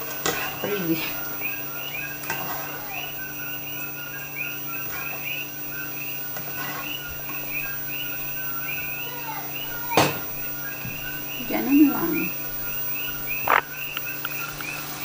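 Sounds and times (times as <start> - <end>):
spatula scraping a pan: 2.3 - 2.8, 6.4 - 7.0
small animal chirping: 6.8 - 14.8.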